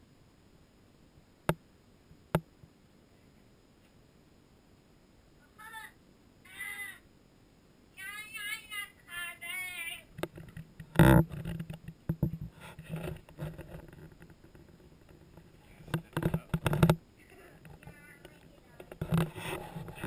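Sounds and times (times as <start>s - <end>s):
child making wordless calls: 5.4s - 7.1s
small knocks and bumps: 10.1s - 17.0s, 17.6s - 20.0s.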